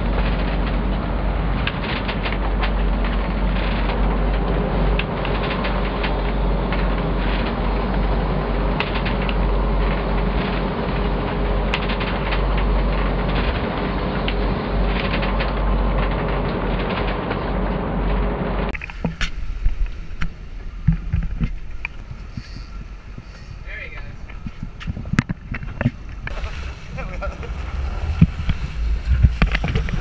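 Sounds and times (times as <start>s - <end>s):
boat engine idling: 0.0s - 30.0s
sea noise: 0.0s - 30.0s
wind: 0.0s - 30.0s
light clicks and rattles: 11.7s - 17.4s.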